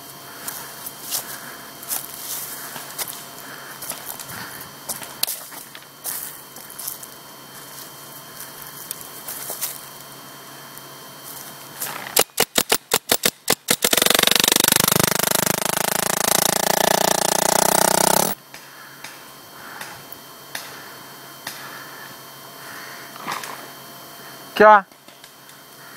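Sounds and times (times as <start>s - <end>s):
paintball marker firing: 12.2s - 18.4s.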